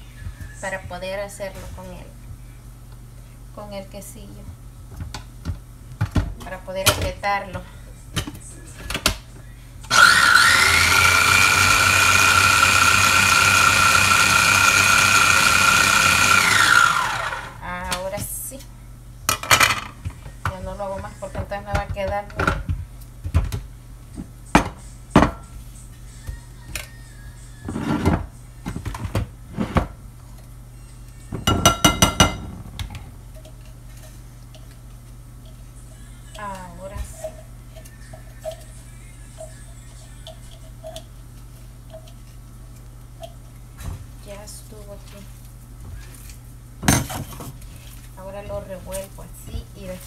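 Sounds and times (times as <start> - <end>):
electric food chopper whining: 9.9 - 17.6.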